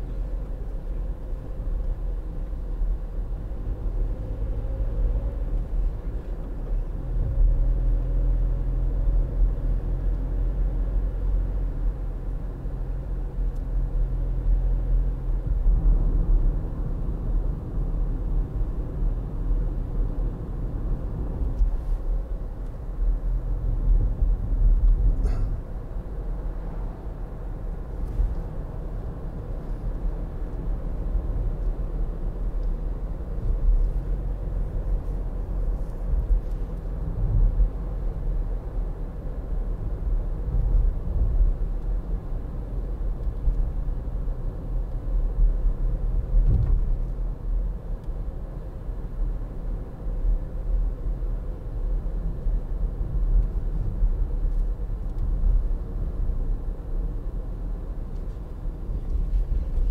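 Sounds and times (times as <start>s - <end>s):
road and tyre rumble: 0.0s - 59.9s.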